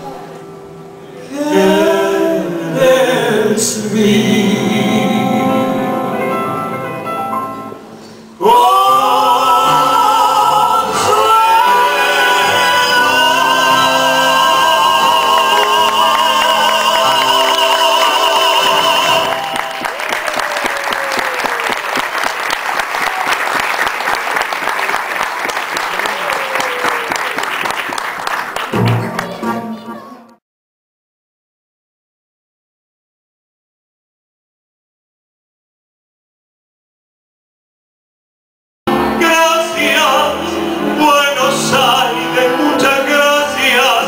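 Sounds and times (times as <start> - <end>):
tango accompaniment: 0.2 - 20.0, 28.5 - 30.4, 38.9 - 44.0
person singing long note: 1.2 - 6.8, 8.4 - 19.9
audience applause: 13.0 - 29.9.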